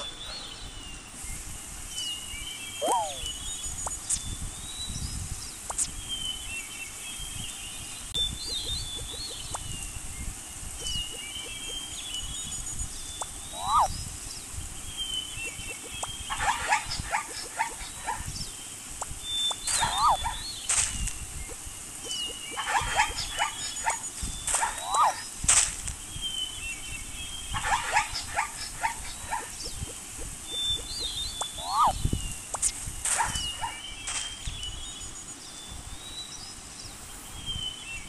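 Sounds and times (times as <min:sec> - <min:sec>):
high bird chirps: 0:01.9 - 0:07.5, 0:08.1 - 0:14.2, 0:14.8 - 0:25.4, 0:26.1 - 0:35.0
quick animal calls: 0:02.8 - 0:03.3, 0:13.5 - 0:13.9, 0:19.7 - 0:20.4, 0:30.8 - 0:32.0
short rising whistles: 0:02.8 - 0:03.4, 0:31.4 - 0:32.0.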